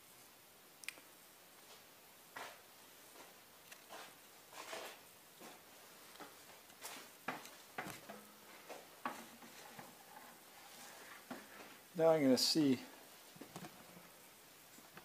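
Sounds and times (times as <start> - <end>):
faint light knocks and rustles: 3.2 - 11.8.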